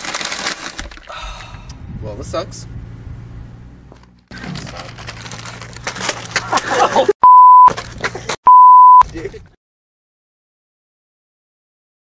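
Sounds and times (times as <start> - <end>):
outdoor background noise: 0.0 - 8.4
electronic censor bleep: 7.2 - 7.7, 8.5 - 9.0.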